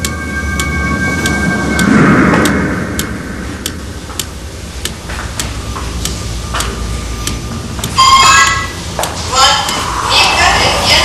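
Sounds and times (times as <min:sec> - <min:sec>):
rushing swell: 0:00.0 - 0:06.5
low steady drone: 0:00.0 - 0:11.0
sharp evenly spaced ticks: 0:00.0 - 0:11.0.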